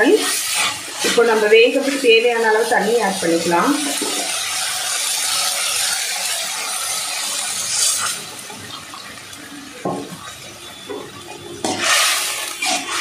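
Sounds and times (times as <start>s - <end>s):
water pouring into a pan: 0.0s - 13.0s
pan hissing: 11.6s - 13.0s.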